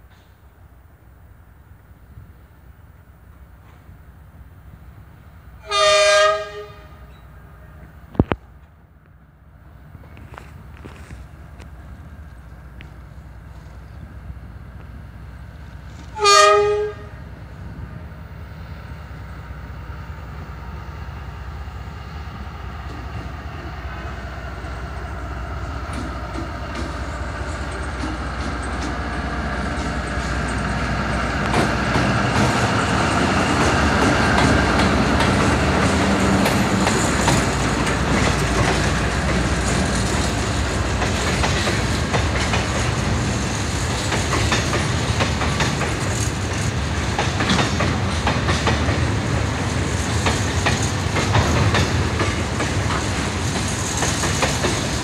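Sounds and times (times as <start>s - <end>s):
locomotive horn blast: 5.6s - 7.9s, 16.0s - 17.2s
locomotive engine passing: 9.2s - 55.0s
wheels clacking over rail joints: 25.8s - 55.0s.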